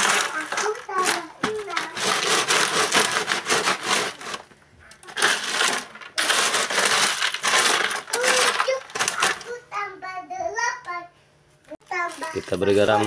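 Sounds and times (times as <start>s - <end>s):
ice cubes clattering and crunching: 0.0s - 9.5s.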